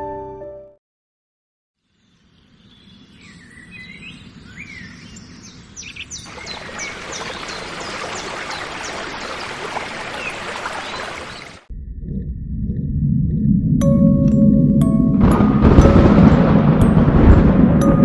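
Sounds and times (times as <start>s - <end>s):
birds calling: 1.9s - 11.7s
running water rushing: 6.2s - 11.7s.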